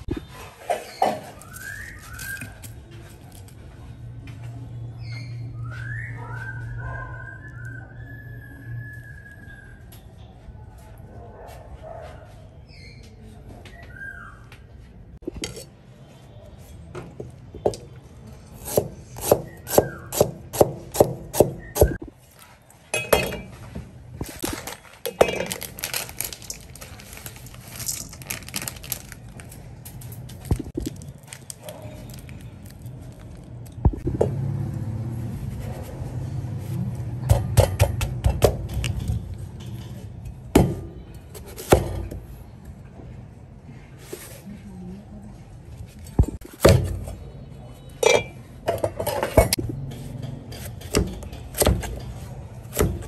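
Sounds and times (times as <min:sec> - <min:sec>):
kitchen utensils knocking and clinking: 0:22.9 - 0:23.6, 0:24.4 - 0:25.8, 0:48.0 - 0:53.0
utensils scraping: 0:48.0 - 0:52.8.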